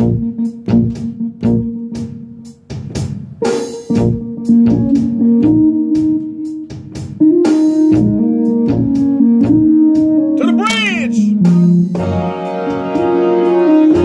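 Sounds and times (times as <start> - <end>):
band music: 10.3 - 14.0.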